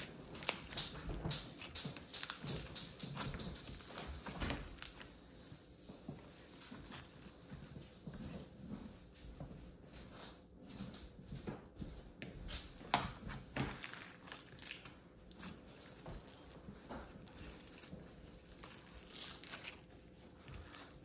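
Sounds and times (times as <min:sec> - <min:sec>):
slime crackling and tearing: 0:00.0 - 0:05.2, 0:06.0 - 0:07.6, 0:12.7 - 0:21.0.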